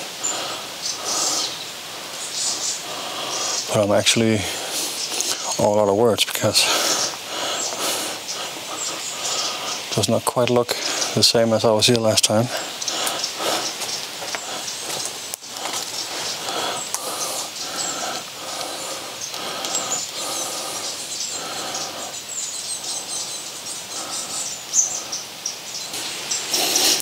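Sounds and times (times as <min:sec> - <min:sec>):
animal calls: 0:00.0 - 0:05.8, 0:06.4 - 0:11.6, 0:12.3 - 0:27.0
high bird chirps: 0:06.7 - 0:27.0.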